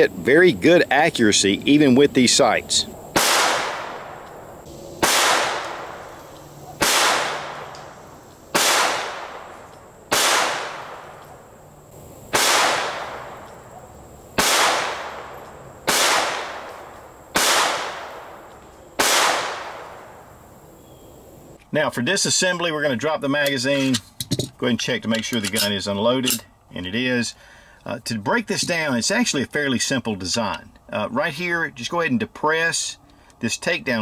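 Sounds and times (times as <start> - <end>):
pistol shots with echo: 3.2 - 4.4, 5.0 - 11.4, 12.3 - 13.8, 14.4 - 20.2.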